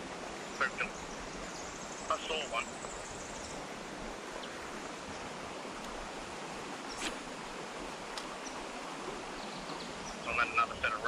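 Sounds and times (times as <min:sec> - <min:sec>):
rocky creek rushing: 0:00.0 - 0:11.0
faint clicks: 0:05.8 - 0:06.0, 0:08.1 - 0:08.6.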